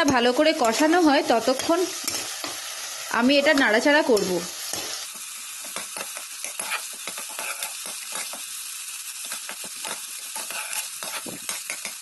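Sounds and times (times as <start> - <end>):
masala sizzling in oil: 0.0 - 12.0
spoon scraping a steel pot: 5.6 - 8.4, 9.2 - 12.0.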